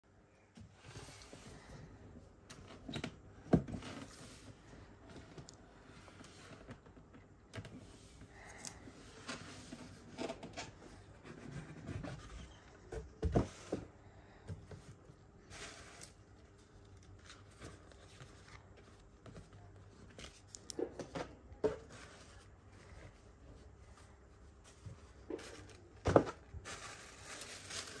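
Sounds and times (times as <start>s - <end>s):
tissue paper and cloth rustling: 26.6s - 28.0s.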